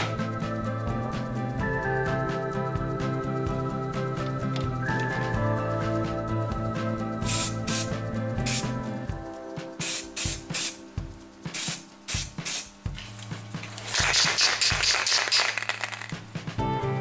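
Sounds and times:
spray paint can spraying: 0:07.2 - 0:08.8, 0:09.8 - 0:10.8, 0:11.5 - 0:12.7, 0:13.6 - 0:16.3.

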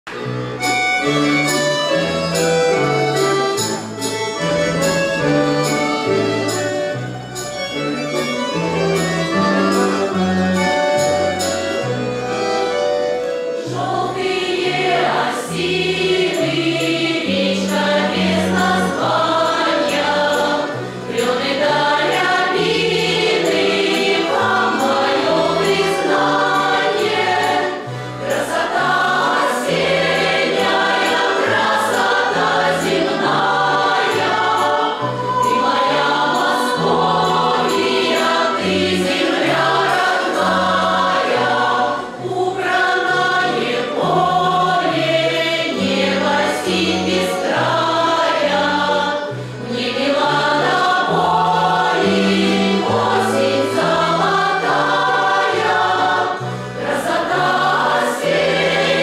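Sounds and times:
women's choir singing folk song: 0:12.3 - 0:59.0.

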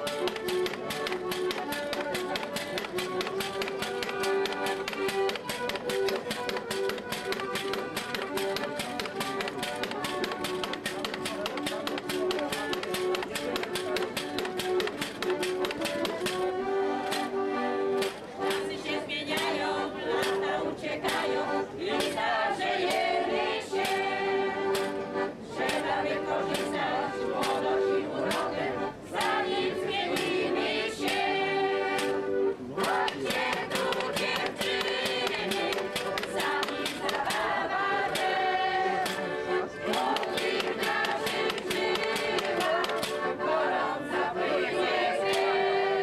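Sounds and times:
percussion staff clacks: 0:00.0 - 0:17.4, 0:18.0 - 0:22.2, 0:24.7 - 0:25.0, 0:25.6 - 0:26.8, 0:27.4 - 0:29.5, 0:30.1 - 0:31.3, 0:31.9 - 0:32.2, 0:32.8 - 0:38.4, 0:39.0 - 0:43.4
group singing in chorus: 0:18.4 - 0:46.0.

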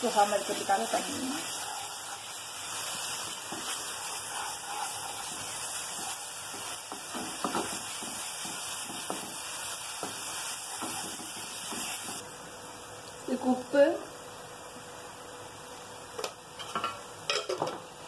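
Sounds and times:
masala sizzling in a pan: 0:00.0 - 0:18.0
wooden spatula scraping a pan: 0:00.1 - 0:12.2.

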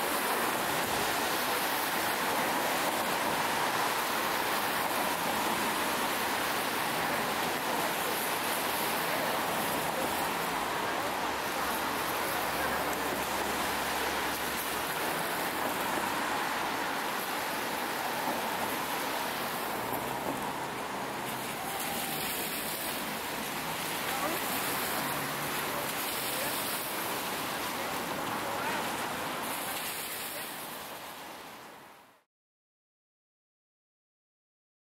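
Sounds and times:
street noise hiss: 0:00.0 - 0:32.3
faint voices: 0:06.8 - 0:16.0, 0:19.2 - 0:31.0.

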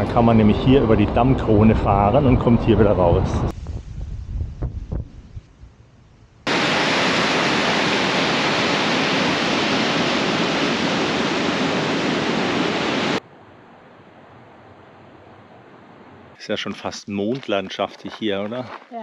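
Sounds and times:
water rushing: 0:06.5 - 0:17.9.

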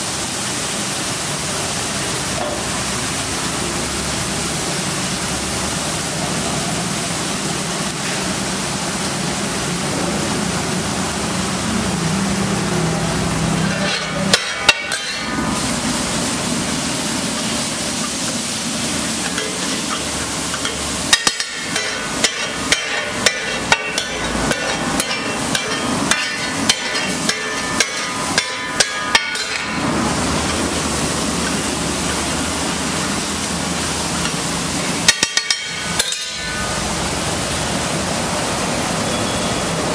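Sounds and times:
vegetables sizzling on griddle: 0:00.0 - 0:39.9
metal clanks: 0:13.6 - 0:15.3, 0:19.2 - 0:29.8, 0:35.1 - 0:36.7
spatula scraping griddle: 0:13.6 - 0:15.4, 0:19.0 - 0:30.6.

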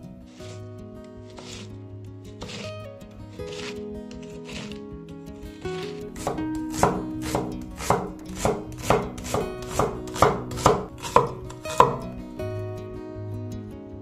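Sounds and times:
knife chopping on wooden board: 0:02.4 - 0:02.6, 0:03.5 - 0:04.8, 0:05.8 - 0:12.1.

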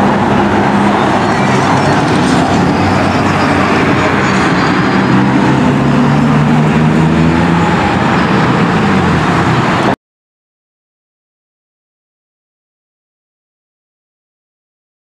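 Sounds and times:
road traffic noise: 0:00.0 - 0:10.0
vehicle engine running: 0:00.0 - 0:10.0.

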